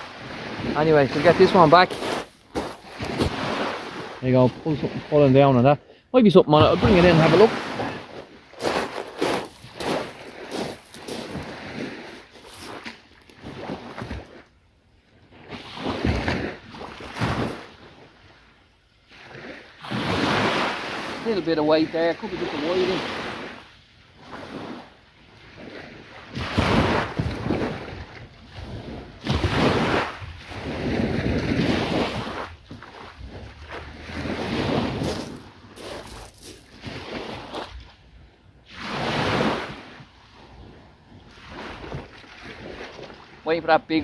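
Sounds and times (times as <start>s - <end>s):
surf washing onto beach: 0.0s - 14.4s, 19.2s - 37.8s, 38.7s - 40.6s
wind buffeting microphone: 26.4s - 37.8s.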